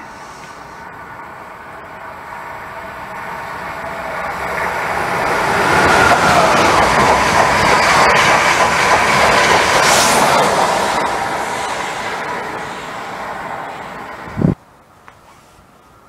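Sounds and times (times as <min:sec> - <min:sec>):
train rushing past: 0:00.0 - 0:14.6
wheels clacking over rail joints: 0:03.5 - 0:12.4.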